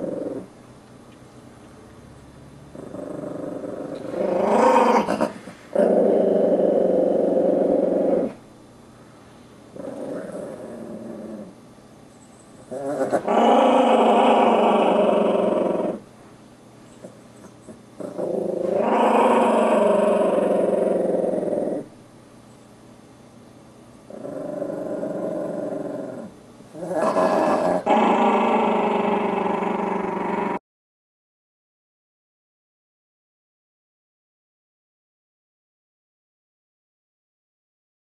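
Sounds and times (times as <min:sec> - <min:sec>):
small dog growling: 0:00.0 - 0:00.5, 0:02.7 - 0:08.4, 0:09.7 - 0:11.6, 0:12.6 - 0:16.0, 0:16.9 - 0:21.9, 0:24.1 - 0:30.6.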